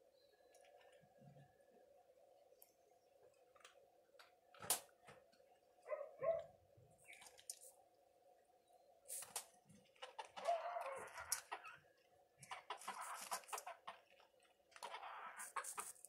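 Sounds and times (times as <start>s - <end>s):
hen clucking and squawking: 10.0s - 14.1s, 14.8s - 16.0s.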